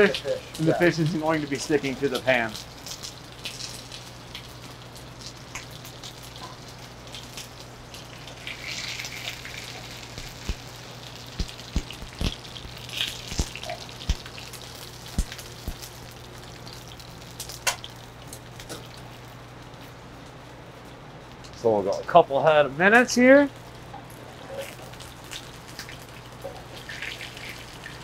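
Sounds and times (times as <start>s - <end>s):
fish sizzling in oil: 0.0s - 19.9s, 23.6s - 28.0s
oil popping and spitting: 8.2s - 16.0s, 24.5s - 28.0s.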